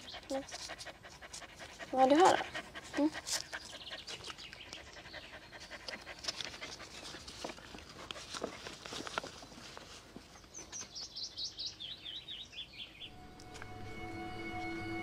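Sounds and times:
songbird chirping: 0.0s - 7.2s, 9.3s - 15.0s
paper crinkling: 6.0s - 10.7s.

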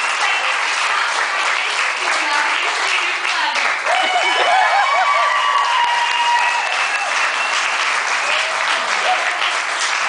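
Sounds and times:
audience applauding and cheering: 0.0s - 10.0s
whoops: 3.8s - 9.4s.

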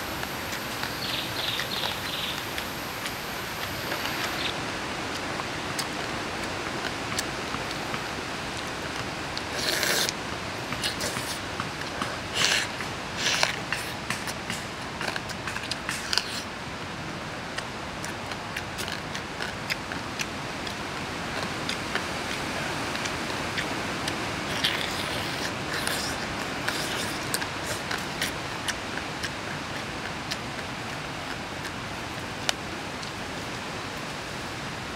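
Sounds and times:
steady hiss: 0.0s - 34.9s
person chewing and crunching: 8.6s - 16.5s, 17.6s - 32.3s.

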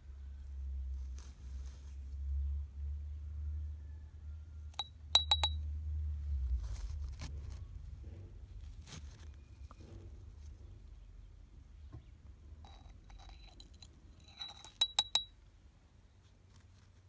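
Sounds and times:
spoon scraping soil: 0.9s - 2.1s, 12.6s - 15.3s
metal spoon clinking glass jar: 4.8s - 5.6s, 12.7s - 15.3s.

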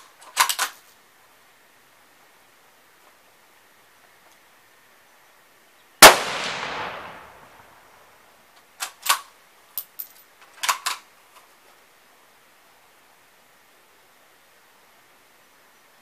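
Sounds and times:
rifle shot echoing: 6.0s - 7.9s.

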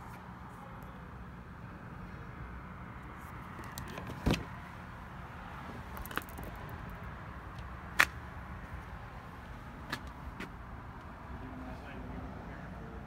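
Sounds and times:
car door clunk: 3.9s - 4.5s.

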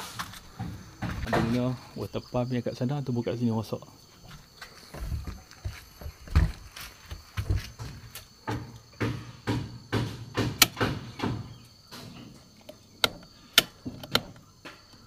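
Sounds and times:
clicks and knocks on metal panel: 0.5s - 1.8s, 7.4s - 15.0s.

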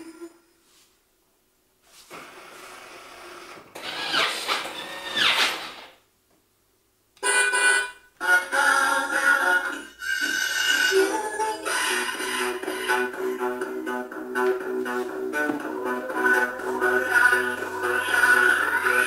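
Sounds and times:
toy car engine sound revving: 3.8s - 5.8s
tinny electronic tune: 11.9s - 19.0s.

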